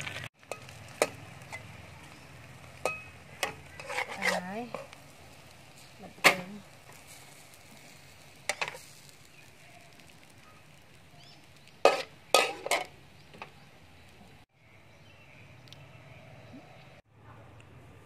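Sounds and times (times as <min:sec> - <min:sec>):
oil sizzling: 0:00.0 - 0:14.5
metal spatula scraping wok: 0:00.2 - 0:09.1, 0:11.8 - 0:13.0.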